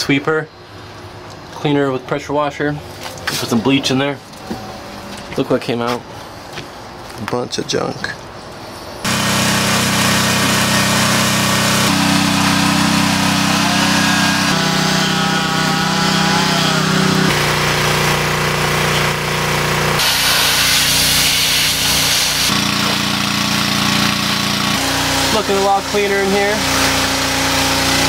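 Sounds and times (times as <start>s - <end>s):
pressure washer humming: 9.0s - 28.0s
hiss of spray: 20.0s - 22.5s.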